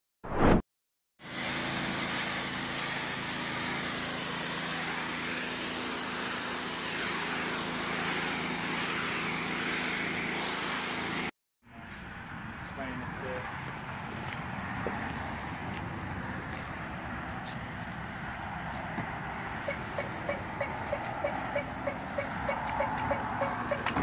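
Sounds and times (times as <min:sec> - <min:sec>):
pressure washer spray hissing: 0:01.2 - 0:11.3.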